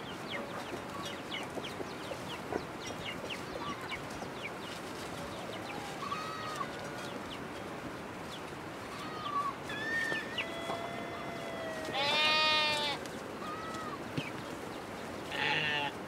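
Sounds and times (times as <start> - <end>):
faint high-pitched calls: 8.9 - 14.0
goat bleating: 11.6 - 14.0, 15.3 - 16.0.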